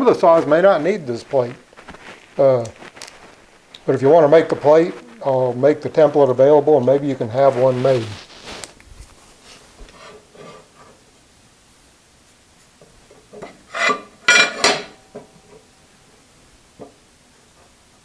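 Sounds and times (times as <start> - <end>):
scraping and squeaking on steel plate: 13.7 - 14.9.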